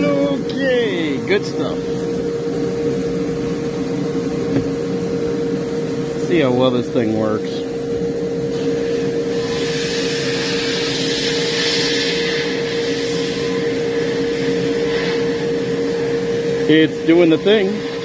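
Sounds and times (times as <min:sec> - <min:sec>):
constant hum: 0:00.0 - 0:18.0
blast nozzle hissing: 0:08.5 - 0:15.5.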